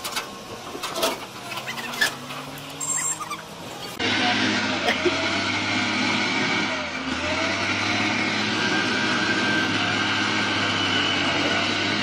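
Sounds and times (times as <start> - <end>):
diesel engine droning: 0.0 - 12.0
steady high whine: 2.6 - 12.0.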